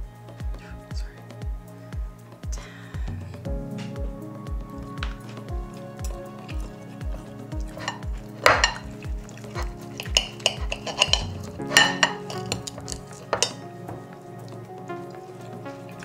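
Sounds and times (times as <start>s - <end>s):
background music with beat: 0.0s - 16.0s
cutlery scraping on plates: 7.8s - 8.8s, 9.6s - 13.6s.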